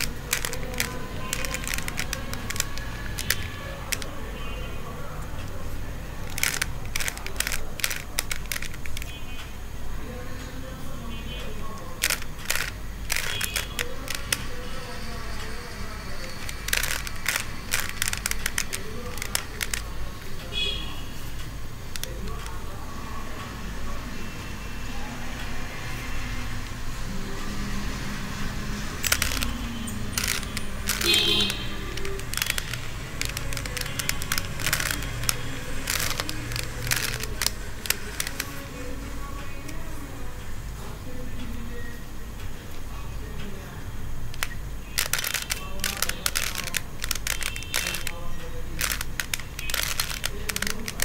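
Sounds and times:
puzzle cube layers clicking: 0.0 - 4.2, 6.2 - 9.2, 11.9 - 20.4, 21.8 - 22.6, 28.9 - 38.8, 44.3 - 51.0.

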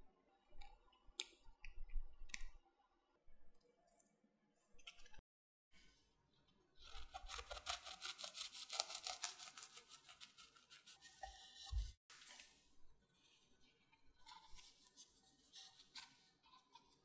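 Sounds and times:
bread knife sawing crisp pastry: 6.8 - 11.8.

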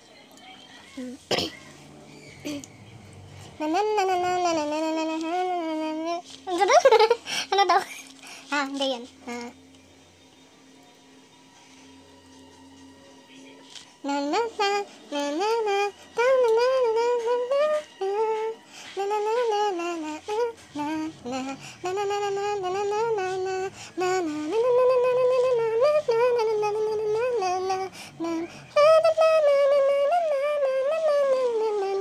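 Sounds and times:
woman humming a melody: 3.4 - 7.6, 14.0 - 32.0.

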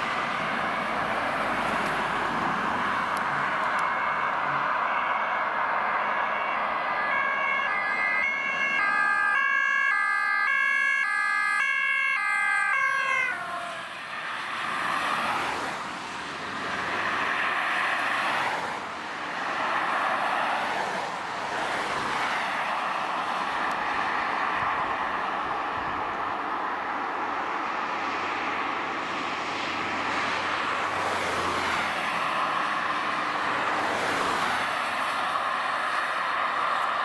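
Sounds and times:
passing cars: 0.0 - 37.0
two-tone siren: 2.7 - 14.4.

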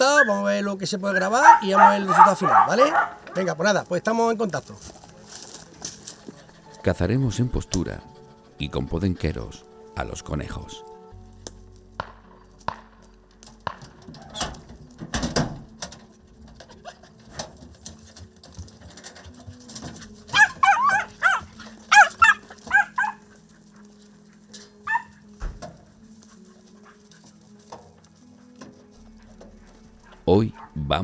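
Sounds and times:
dogs yelping: 0.0 - 0.5, 1.1 - 3.6, 7.8 - 9.4, 19.7 - 25.4, 28.2 - 30.8.

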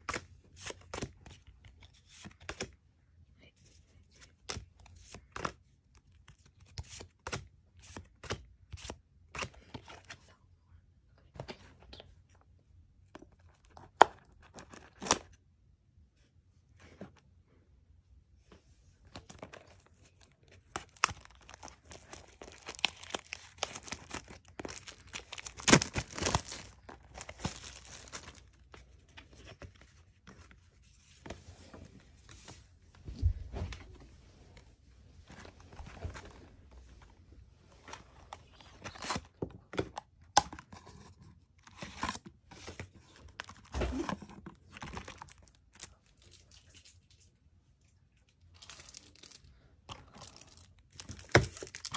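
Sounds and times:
foil wrapper tearing and crinkling: 20.9 - 28.4.

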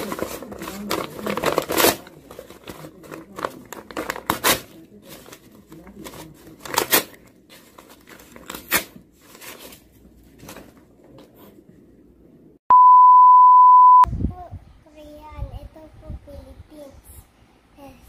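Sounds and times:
paper tearing and crumpling: 0.0 - 10.7
loud steady beep tone: 12.7 - 14.1.

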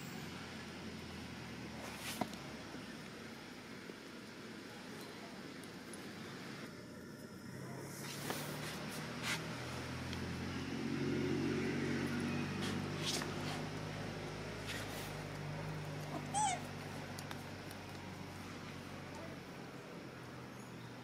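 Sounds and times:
baby monkey squealing: 16.1 - 16.7.

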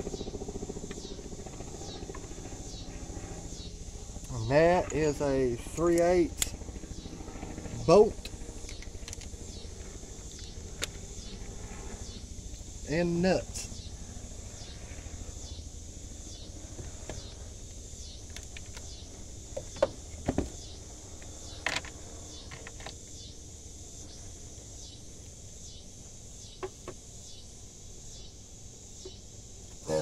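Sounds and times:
steady high-pitched hiss: 0.0 - 30.0.

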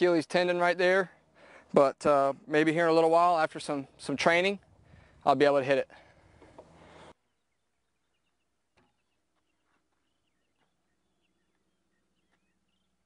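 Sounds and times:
faint outdoor background noise: 0.0 - 13.0
faint bird chirps: 6.9 - 13.0.

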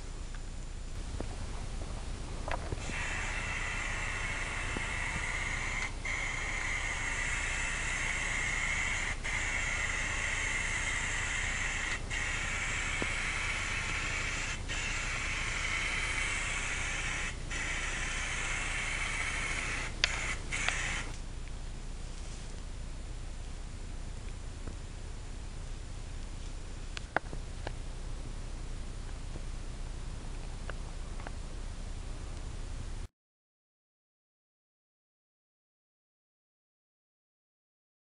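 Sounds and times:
spray can hissing: 2.8 - 21.2
sharp clicks: 20.0 - 21.2.

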